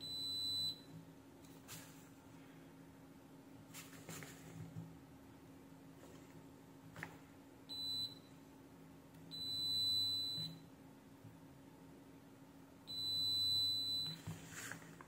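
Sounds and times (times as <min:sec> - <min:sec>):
multimeter continuity beeps: 0:00.0 - 0:00.9, 0:07.7 - 0:08.4, 0:09.3 - 0:10.7, 0:12.9 - 0:14.2.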